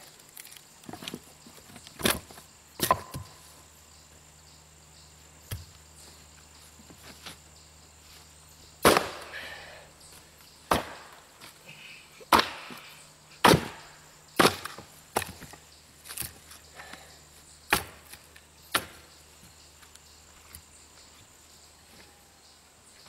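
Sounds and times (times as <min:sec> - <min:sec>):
axe strikes splitting wood: 0:02.8 - 0:03.3, 0:08.8 - 0:09.5, 0:10.7 - 0:11.2, 0:12.3 - 0:12.8, 0:13.4 - 0:15.6, 0:17.7 - 0:19.0.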